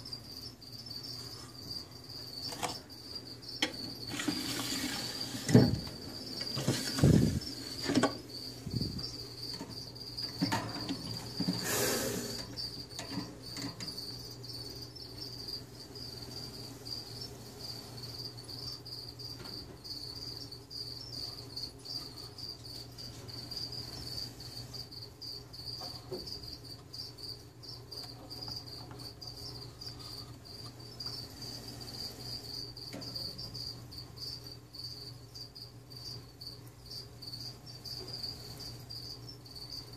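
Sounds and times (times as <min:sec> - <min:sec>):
cricket chirping: 0:00.0 - 0:39.9
knocks and bumps: 0:05.2 - 0:11.6.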